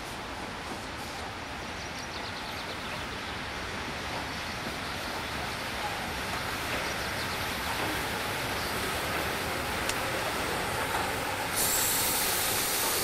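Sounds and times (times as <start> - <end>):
train wheels rumbling on rails: 0.0 - 13.0
loud steam hiss: 7.7 - 13.0.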